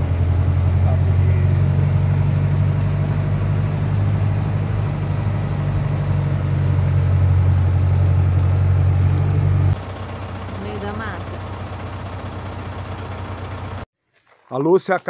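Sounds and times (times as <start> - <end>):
engine and road drone: 0.0 - 13.9.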